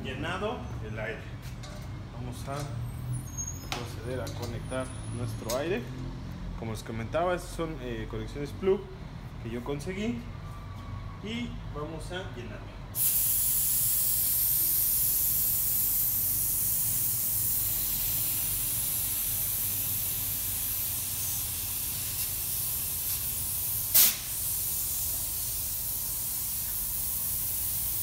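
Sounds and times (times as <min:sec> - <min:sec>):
compressed air hissing: 0:13.0 - 0:28.0.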